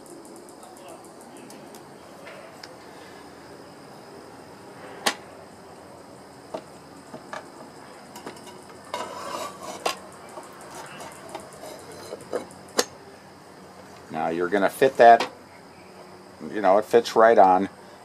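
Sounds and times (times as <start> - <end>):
scraping rattle: 8.1 - 12.8.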